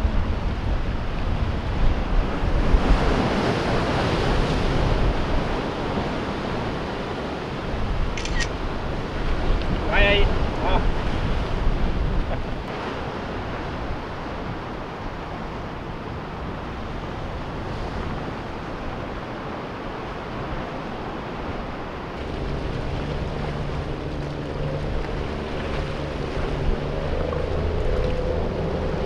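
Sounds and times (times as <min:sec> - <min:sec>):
water washing against shore: 0:00.0 - 0:29.0
wind on microphone: 0:00.0 - 0:29.0
low engine hum: 0:22.1 - 0:29.0.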